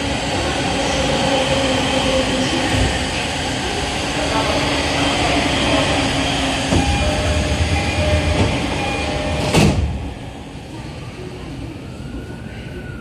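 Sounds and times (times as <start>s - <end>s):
train doors banging shut: 6.6s - 10.1s
door chime tones: 6.8s - 9.8s.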